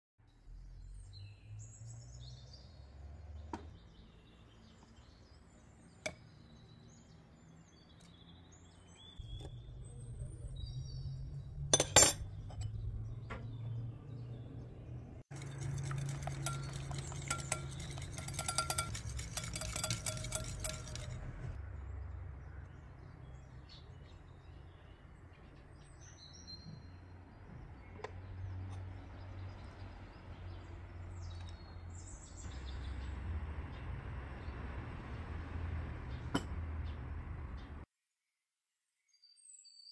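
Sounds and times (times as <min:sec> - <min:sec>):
sharp clink against glass: 0:11.8 - 0:12.7
whisk beating in a glass bowl: 0:15.3 - 0:21.6.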